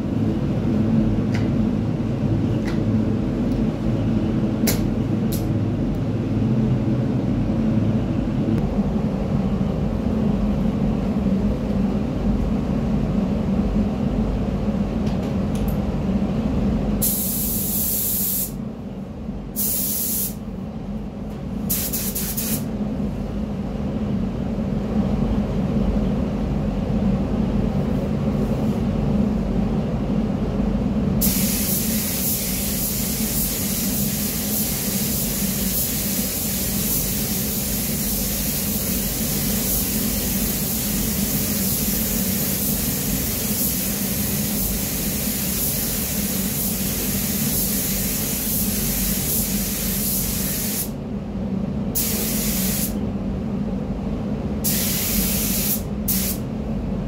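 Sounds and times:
paint spray gun hissing: 0:17.0 - 0:18.6, 0:19.6 - 0:20.4, 0:21.7 - 0:22.6, 0:31.2 - 0:50.9, 0:52.0 - 0:52.9, 0:54.7 - 0:56.4.

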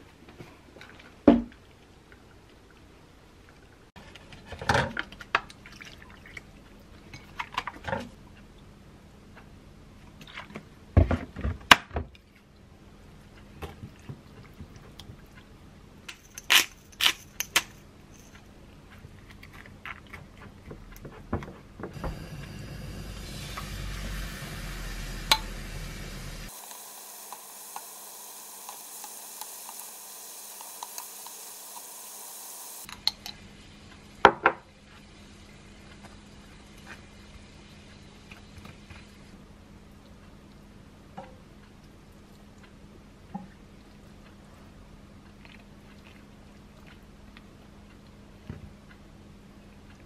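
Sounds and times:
steady hiss: 0:22.0 - 0:32.9.

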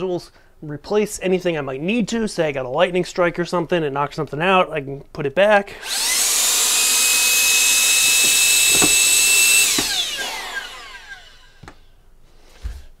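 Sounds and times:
vacuum suction tool whining: 0:05.8 - 0:12.0.

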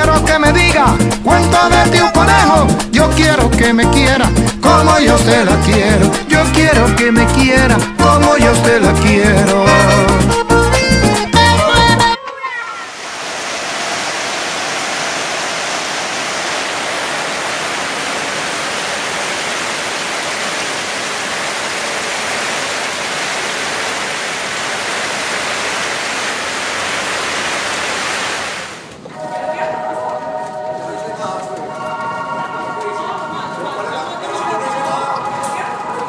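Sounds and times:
heavy rain pouring: 0:12.6 - 0:36.0.

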